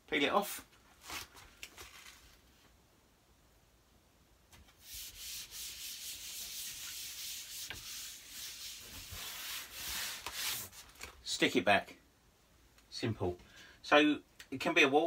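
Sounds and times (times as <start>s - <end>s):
hand rubbing paper poster: 4.6s - 11.0s.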